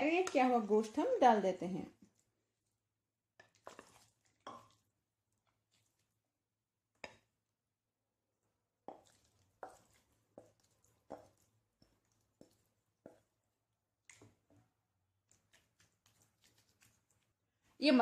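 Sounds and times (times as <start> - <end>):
meat plopping into pan: 3.3 - 6.2, 8.8 - 13.4
spatula scraping bowl: 3.4 - 4.8, 15.3 - 17.2.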